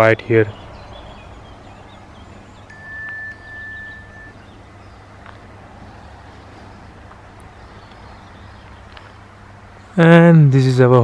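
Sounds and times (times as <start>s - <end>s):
thin high steady tone: 2.7s - 4.5s.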